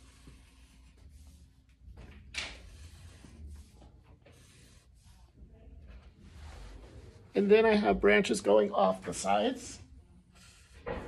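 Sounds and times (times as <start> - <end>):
marker scratching on paper: 0.0 - 6.0, 10.3 - 11.0.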